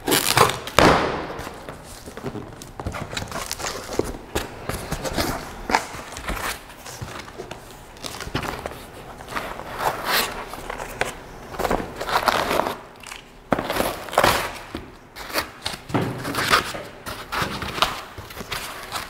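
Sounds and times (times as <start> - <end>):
cardboard and foam rustling: 0.0 - 12.9, 13.5 - 19.0.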